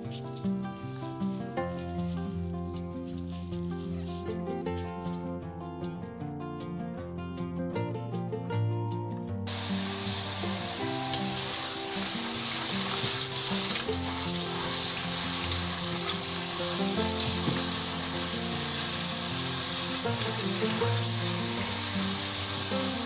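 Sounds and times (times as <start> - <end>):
tap water running into sink: 9.5 - 23.0.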